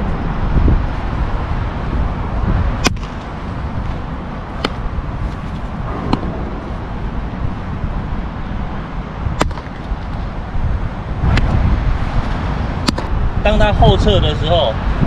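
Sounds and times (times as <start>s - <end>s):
low outdoor rumble: 0.0s - 13.6s.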